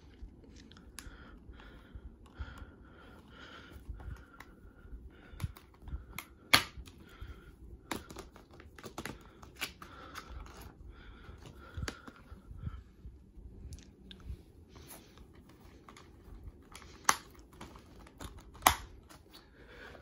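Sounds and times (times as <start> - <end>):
plastic cases clicking: 7.9 - 10.7, 16.7 - 19.3.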